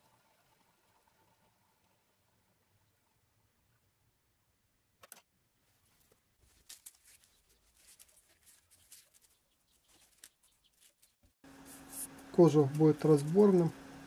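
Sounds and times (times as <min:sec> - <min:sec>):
faint clicks and rustles: 0:05.0 - 0:13.6.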